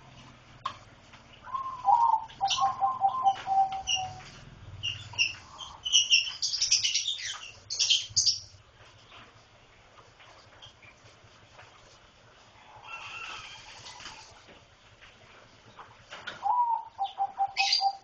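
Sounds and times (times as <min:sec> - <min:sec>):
lovebirds chirping: 0:01.1 - 0:09.2, 0:15.7 - 0:18.0.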